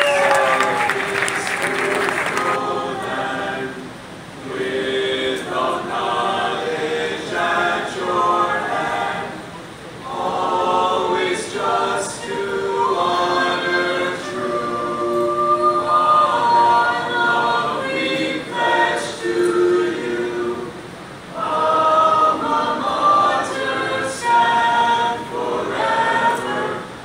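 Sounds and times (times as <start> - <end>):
applause: 0.0 - 2.6
group singing unaccompanied: 0.4 - 27.0.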